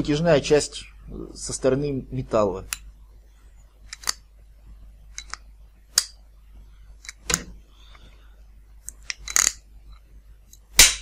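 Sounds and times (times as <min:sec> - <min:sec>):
rivet tool metallic clicks: 0:03.9 - 0:04.2, 0:05.2 - 0:05.4, 0:08.8 - 0:09.6.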